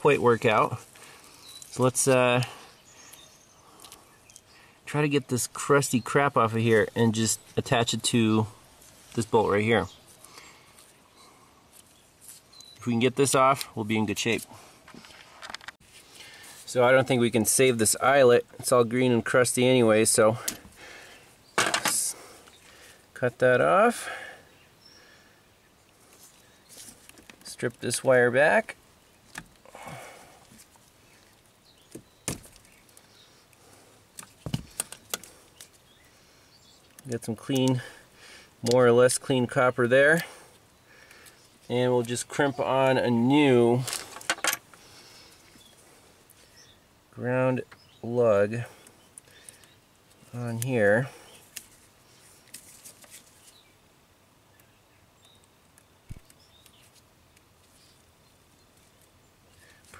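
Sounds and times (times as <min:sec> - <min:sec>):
faint bird chirps: 0:01.2 - 0:01.8, 0:09.7 - 0:12.9.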